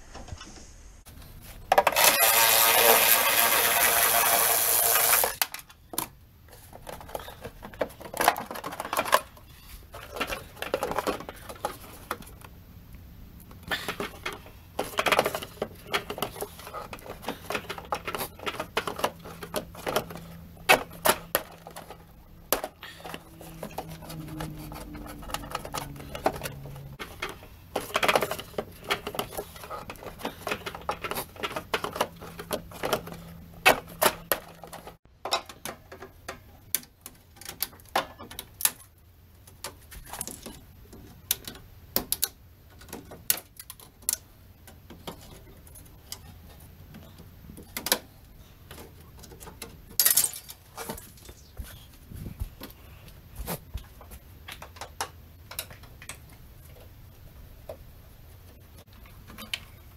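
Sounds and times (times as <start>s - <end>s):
plastic clips and metal parts clicking: 13.5s - 38.9s.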